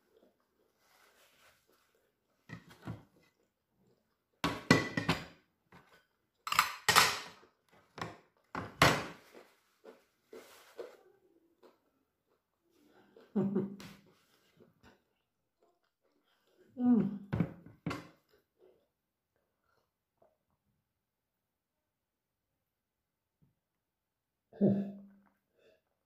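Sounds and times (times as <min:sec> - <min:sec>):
cutlery clinking on a plate: 0:04.5 - 0:07.4.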